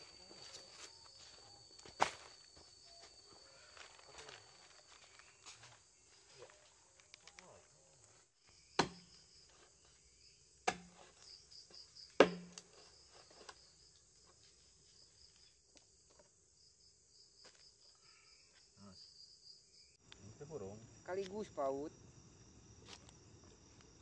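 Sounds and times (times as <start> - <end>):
insects chirring: 0.0 - 24.0
sharp knocks: 8.8 - 9.1, 12.2 - 12.6.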